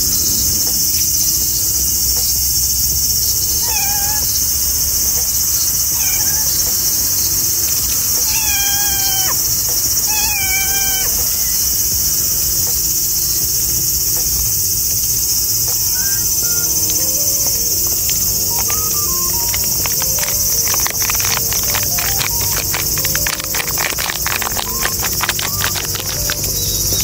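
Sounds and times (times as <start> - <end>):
high-pitched insect chorus: 0.0 - 27.0
cat meowing: 3.6 - 4.4, 5.8 - 6.8, 8.0 - 11.8, 18.5 - 26.4.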